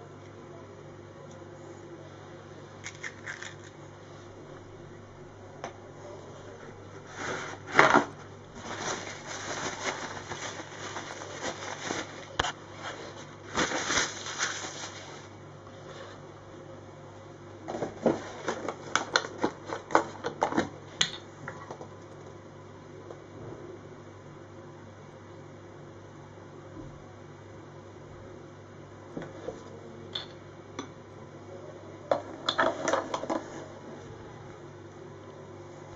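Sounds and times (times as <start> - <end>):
kitchen paper rustling: 7.0 - 16.1.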